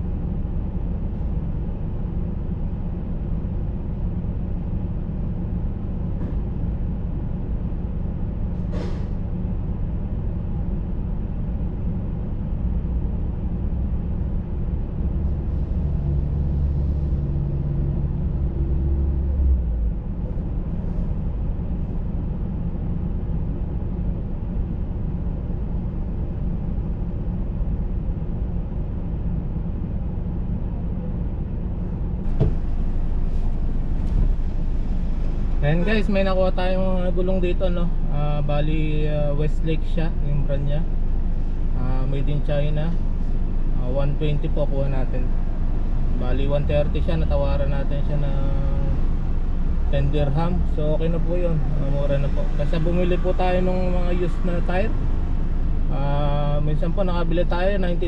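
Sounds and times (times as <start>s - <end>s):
vehicle engine running: 0.0s - 30.1s, 30.7s - 58.0s.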